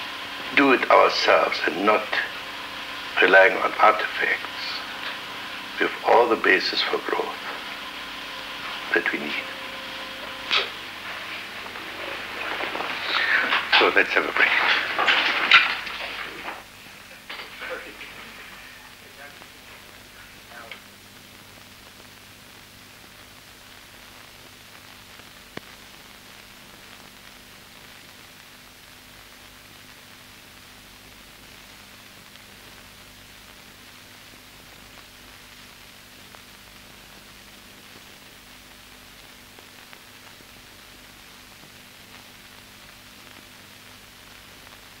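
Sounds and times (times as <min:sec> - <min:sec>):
low hum: 0:00.0 - 0:21.0
film soundtrack hiss: 0:00.0 - 0:45.0.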